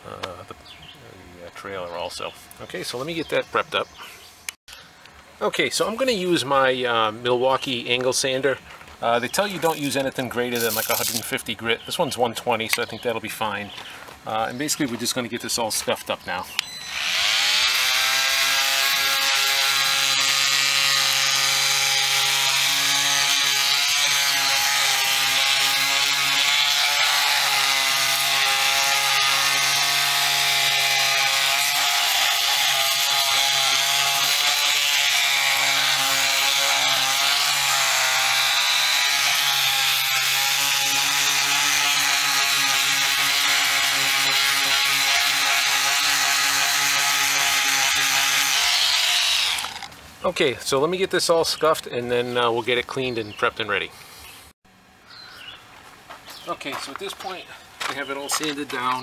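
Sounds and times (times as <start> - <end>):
oscillating multi-tool sanding: 16.8 - 49.9.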